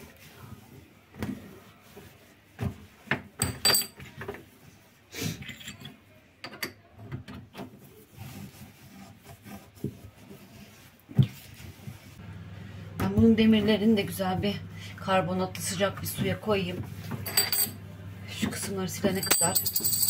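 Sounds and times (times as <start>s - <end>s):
cloth wiping hob top: 0.0s - 3.1s, 7.8s - 12.2s.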